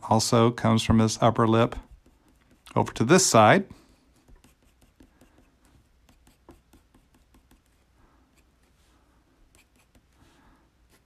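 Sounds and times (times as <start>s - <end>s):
pencil scratching on paper: 1.5s - 8.8s, 9.4s - 10.3s.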